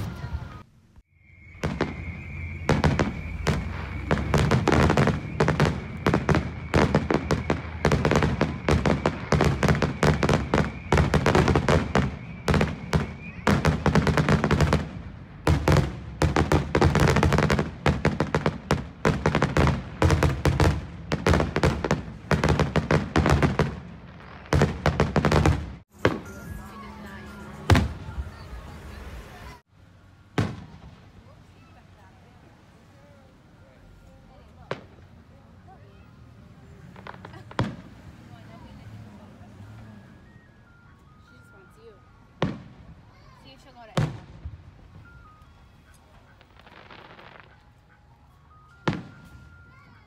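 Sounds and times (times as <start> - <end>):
fireworks bursts and bangs: 1.5 - 29.6, 30.4 - 31.8, 34.6 - 38.8, 42.4 - 45.2, 45.9 - 47.7, 48.8 - 49.8
steady high tone: 25.9 - 29.6.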